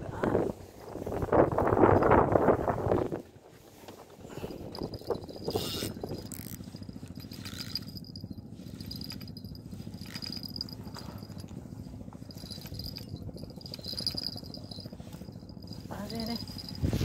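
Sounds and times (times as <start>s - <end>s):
fishing reel cranking: 4.4s - 11.4s, 12.3s - 17.0s.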